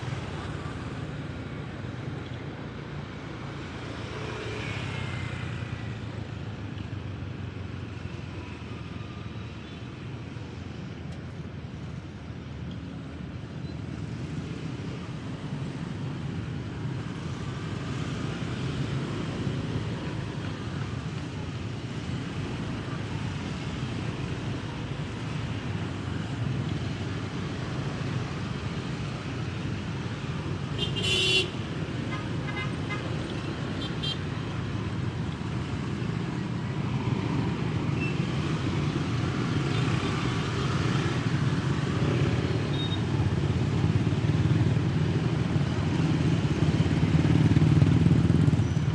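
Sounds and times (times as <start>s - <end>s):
motorbike traffic noise: 0.0s - 48.9s
vehicle horn toot: 30.8s - 31.5s.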